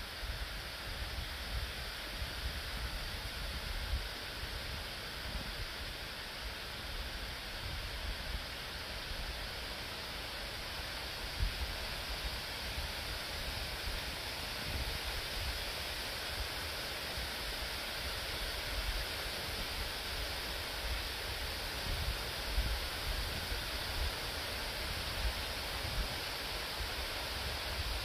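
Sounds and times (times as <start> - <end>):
wind through leaves: 0.0 - 28.0.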